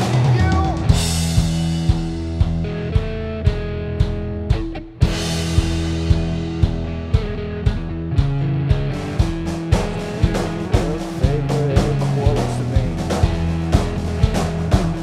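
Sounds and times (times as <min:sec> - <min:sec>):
drum kit steady beat: 0:00.0 - 0:15.0
electric guitar: 0:00.0 - 0:15.0.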